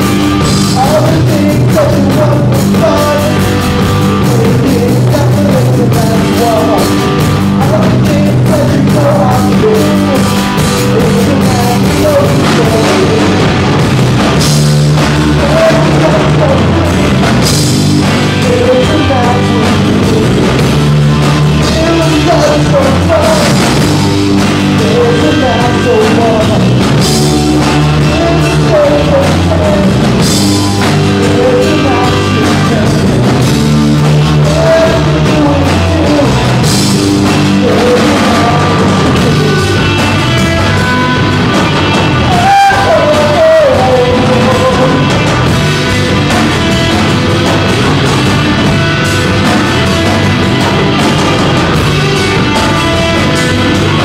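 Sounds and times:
bass guitar: 0.0s - 54.0s
drum kit: 0.0s - 54.0s
electric guitars: 0.0s - 54.0s
person singing: 0.0s - 54.0s.

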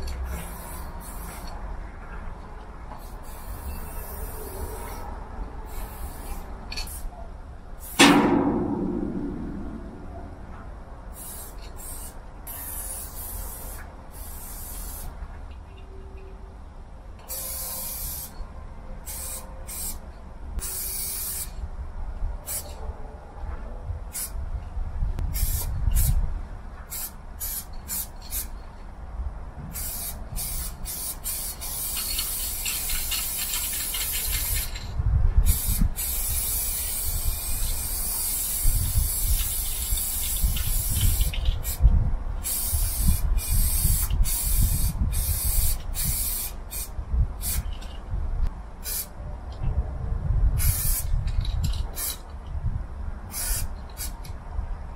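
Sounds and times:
spray paint can hissing: 0.0s - 1.5s, 3.0s - 7.1s, 7.8s - 8.0s, 11.1s - 15.2s, 17.3s - 18.4s, 19.0s - 20.0s, 20.6s - 21.6s, 22.5s - 22.8s, 24.1s - 24.4s, 25.3s - 26.2s, 26.9s - 28.6s, 29.7s - 41.8s, 42.4s - 48.0s, 48.8s - 49.1s, 50.6s - 52.3s, 53.3s - 54.2s
low rumble: 8.0s - 11.1s.

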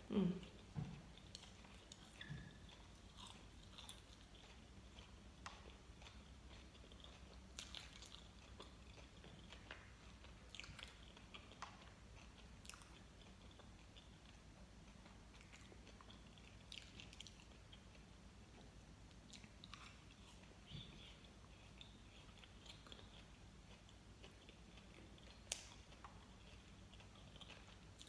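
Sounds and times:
sticky chewing of gummy candy: 0.1s - 28.0s.

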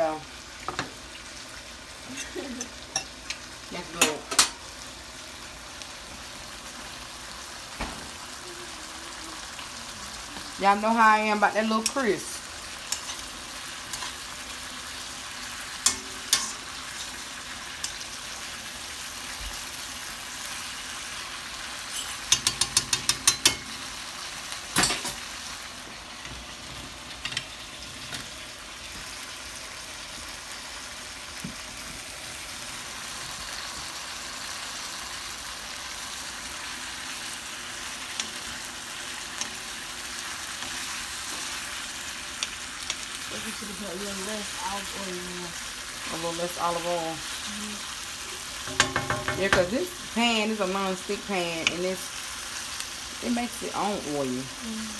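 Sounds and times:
food sizzling in a pan: 0.0s - 54.9s
utensil tapping against pan: 48.7s - 49.7s.

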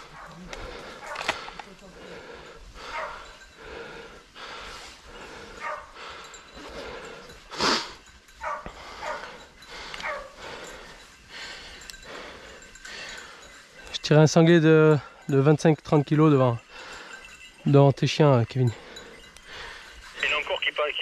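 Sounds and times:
dogs barking: 0.0s - 1.4s, 2.8s - 3.4s, 5.2s - 6.2s, 8.4s - 10.9s.

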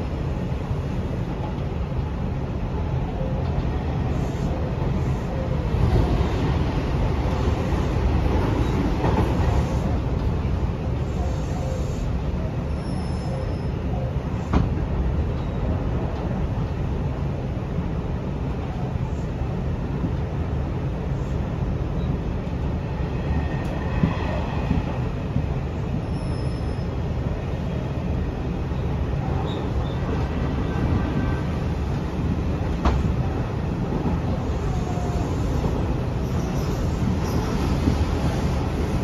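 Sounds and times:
train wheels rumbling on rail: 0.0s - 39.0s
faint thin squeals: 12.7s - 13.7s.

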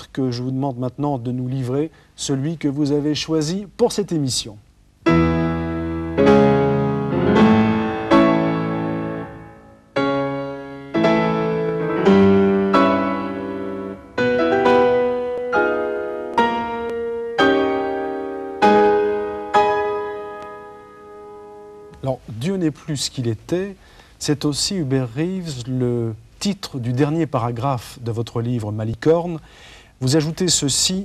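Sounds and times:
piano playing slow chords: 5.0s - 22.1s.

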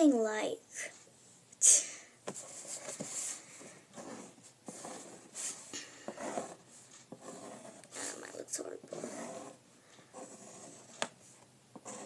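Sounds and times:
pen scratching on paper: 2.4s - 12.0s.

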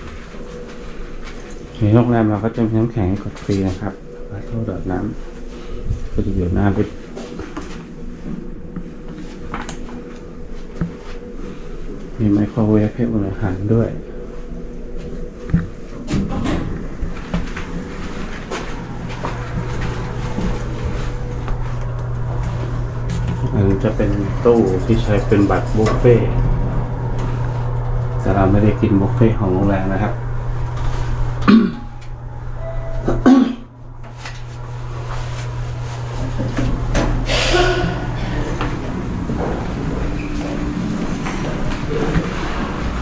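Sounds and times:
low hum: 0.0s - 43.0s
steady machine hum: 0.0s - 43.0s
footsteps and small knocks: 15.0s - 26.1s
lift doors sliding open: 34.0s - 43.0s.

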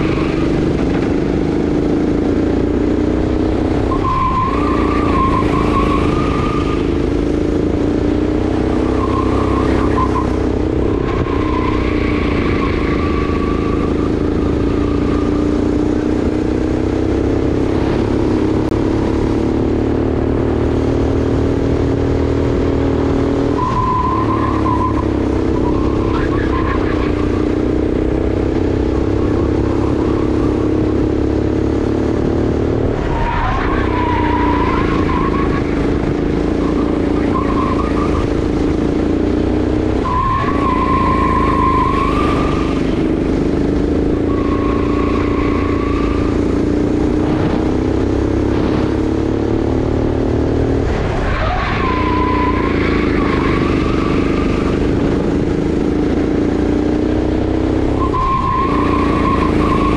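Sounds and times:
kart engine running hard: 0.0s - 59.9s
tyres squealing: 3.8s - 7.7s, 8.4s - 16.0s, 23.5s - 31.3s, 32.9s - 49.2s, 50.6s - 55.4s, 57.9s - 59.9s.

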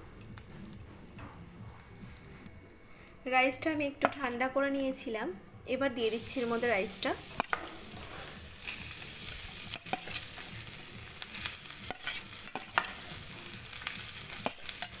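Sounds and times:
rice sizzling in hot fat: 6.0s - 15.0s
spatula tapping and scraping pan: 11.8s - 13.2s.

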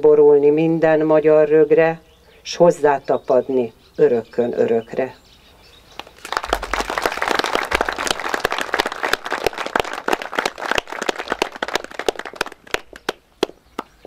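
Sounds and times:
audience applauding: 6.0s - 13.2s.

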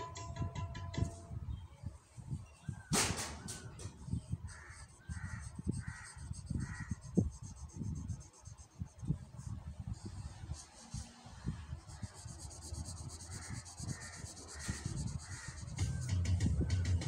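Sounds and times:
crow cawing: 4.5s - 7.0s, 13.4s - 15.6s
marker pen drawing on paper: 4.5s - 16.3s.

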